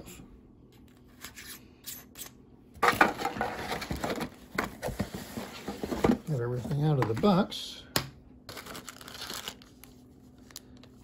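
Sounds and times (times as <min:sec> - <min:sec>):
cardboard and packing rustling: 0:02.8 - 0:07.5, 0:08.5 - 0:10.6.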